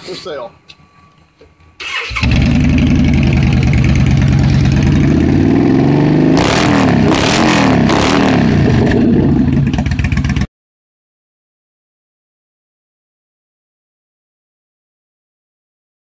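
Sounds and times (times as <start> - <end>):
motorcycle engine idling and revving: 1.8 - 10.5.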